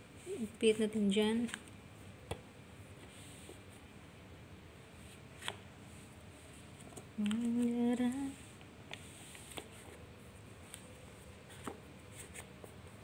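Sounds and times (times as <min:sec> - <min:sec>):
person humming: 0:07.2 - 0:08.4.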